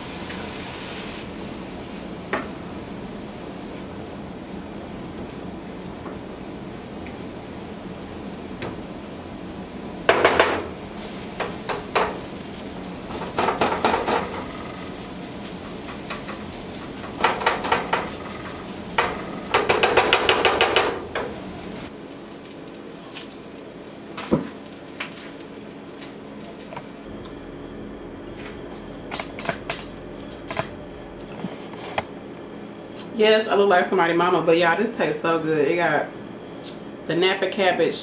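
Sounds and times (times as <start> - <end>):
food sizzling in a pan: 0.0 - 27.1
utensil scraping a skillet: 11.0 - 21.9.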